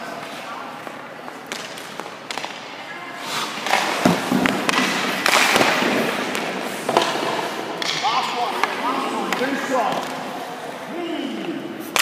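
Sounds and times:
hockey stick and puck knocks: 0:01.4 - 0:02.7, 0:03.6 - 0:10.2.

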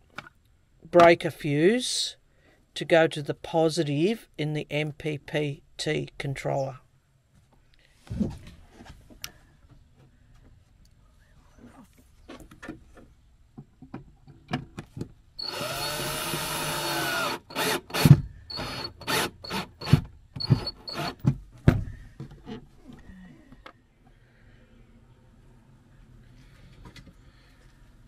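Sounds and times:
cordless drill driving a screw: 0:15.4 - 0:21.2.

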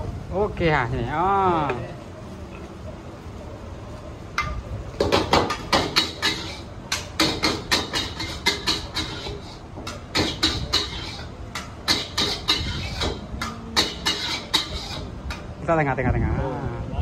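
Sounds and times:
metal ladle clanging on wok: 0:04.4 - 0:15.5.

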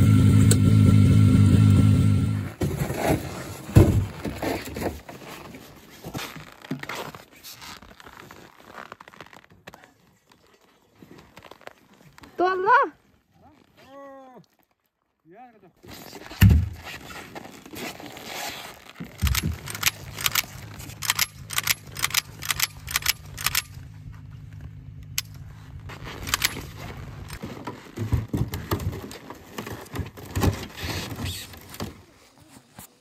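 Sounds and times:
rifle metallic clicks and rattles: 0:19.1 - 0:23.8, 0:26.2 - 0:27.4
engine idling hum: 0:19.3 - 0:27.4.

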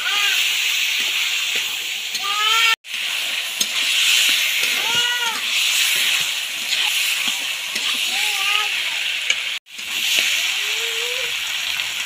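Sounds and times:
food sizzling in hot oil: 0:00.0 - 0:12.0
metal ladle stirring and scraping: 0:00.9 - 0:08.3.

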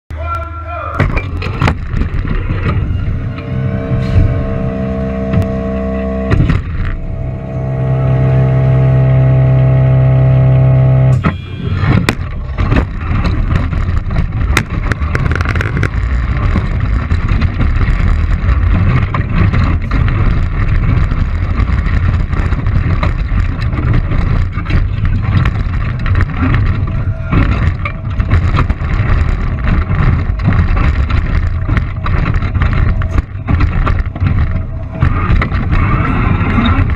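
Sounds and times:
robot rattling and clattering: 0:01.0 - 0:03.4, 0:11.2 - 0:36.9
robot motor hum: 0:01.3 - 0:36.9.

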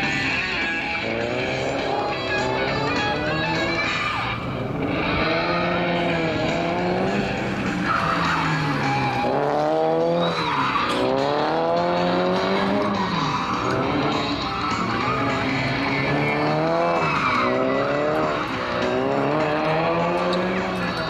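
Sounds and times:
race car engine revving: 0:00.0 - 0:21.0
tyres squealing: 0:12.5 - 0:18.7.

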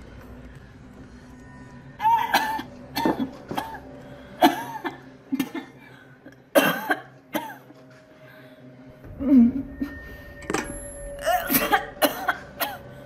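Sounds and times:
girl coughing and retching: 0:02.0 - 0:03.8, 0:06.5 - 0:07.7, 0:11.2 - 0:12.9.

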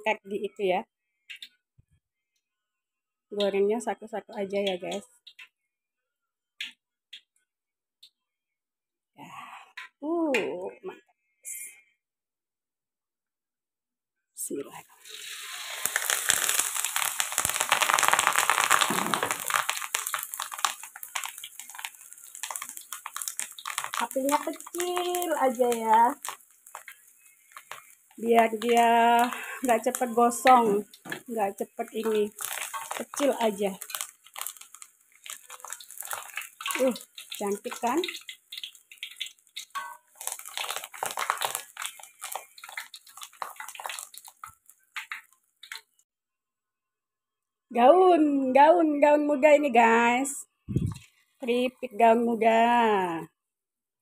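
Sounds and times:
hot oil sizzling and crackling: 0:14.7 - 0:46.0.

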